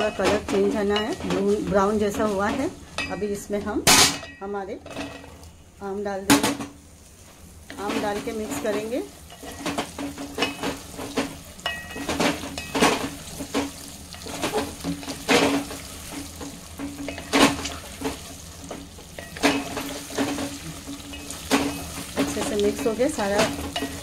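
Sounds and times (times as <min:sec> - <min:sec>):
oil sizzling: 0:00.0 - 0:24.0
spatula scraping metal pot: 0:07.7 - 0:24.0.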